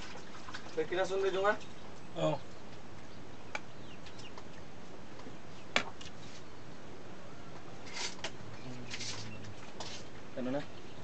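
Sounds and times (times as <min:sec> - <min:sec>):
short rustle: 0:07.8 - 0:10.2.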